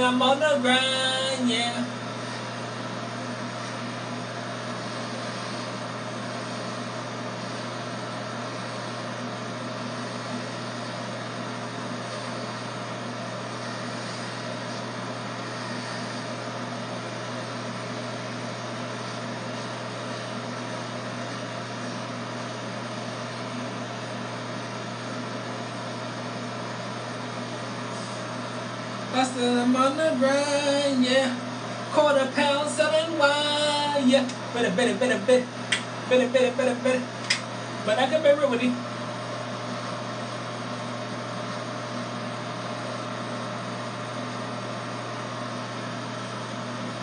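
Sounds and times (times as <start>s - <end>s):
electric hair clippers buzzing: 0.0s - 47.0s.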